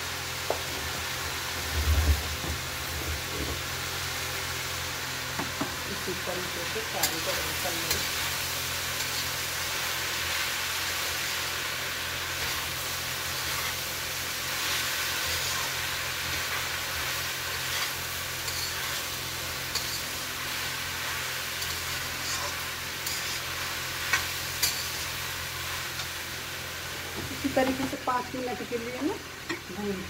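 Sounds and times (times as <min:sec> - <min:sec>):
potatoes sizzling in oil: 0:00.0 - 0:30.0
metal spatula scraping pan: 0:17.7 - 0:19.1, 0:19.7 - 0:20.1, 0:21.6 - 0:23.4, 0:24.1 - 0:25.1.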